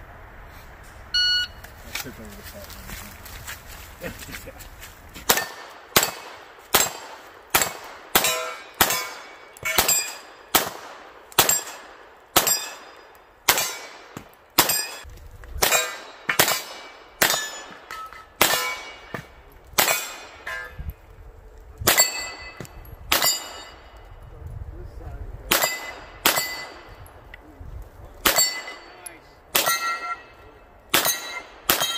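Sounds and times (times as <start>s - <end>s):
steel targets ringing: 5.3s - 10.6s, 11.4s - 15.0s, 15.6s - 20.9s, 21.9s - 23.9s, 25.5s - 27.0s, 28.2s - 31.9s
handgun shots: 5.3s - 12.9s.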